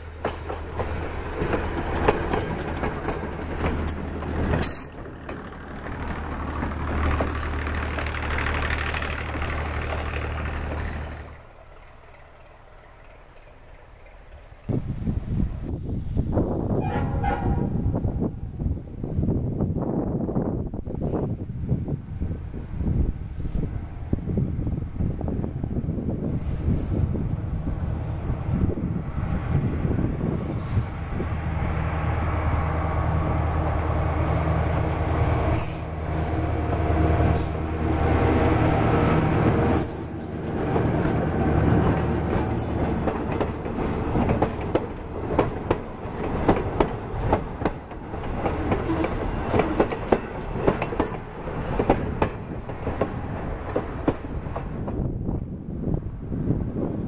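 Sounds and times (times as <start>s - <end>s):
train wheels clicking over rail joints: 0.0s - 14.7s, 33.1s - 55.1s
diesel locomotive engine drone: 0.0s - 57.0s
faint high wheel squeal: 34.8s - 36.7s.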